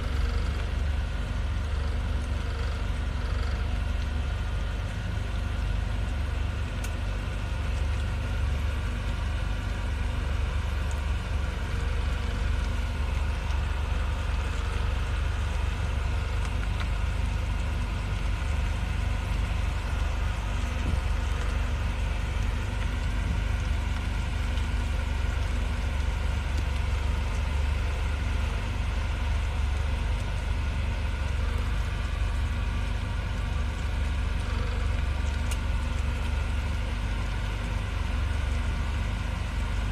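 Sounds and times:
road noise: 0.0s - 39.9s
vehicle engine rumble: 0.0s - 39.9s.

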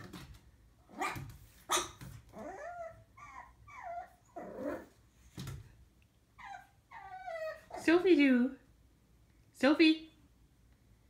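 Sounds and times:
puppy barking: 0.9s - 3.5s
puppy yelping: 0.9s - 4.9s, 6.4s - 7.9s.

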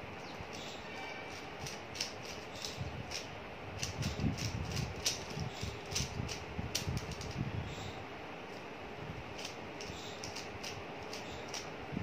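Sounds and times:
puzzle cube clicking: 1.3s - 7.4s.

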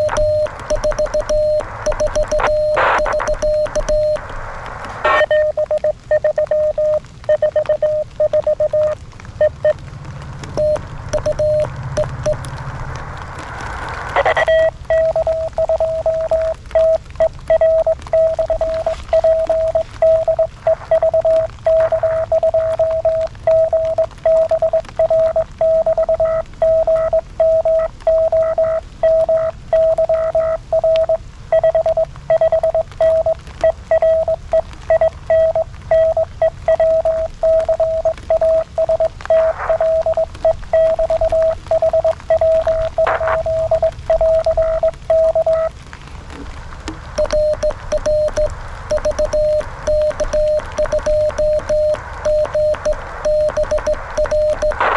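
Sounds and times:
morse code beeps: 0.0s - 4.2s, 5.0s - 9.8s, 10.5s - 12.4s, 14.2s - 45.7s, 47.1s - 54.9s
faint radio hiss: 0.0s - 54.9s.

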